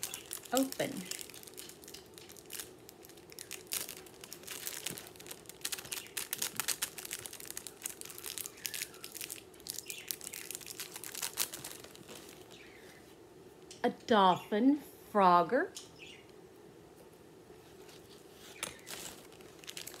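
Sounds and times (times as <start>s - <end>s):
packet crinkling and rustling: 0.0s - 12.8s, 17.9s - 20.0s.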